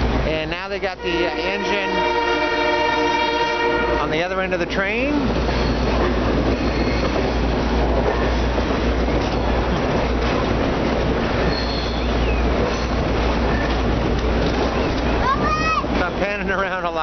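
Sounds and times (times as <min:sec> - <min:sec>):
train wheels rumbling on rails: 0:00.0 - 0:17.0
high wheel squeal: 0:05.4 - 0:07.4, 0:11.4 - 0:13.8.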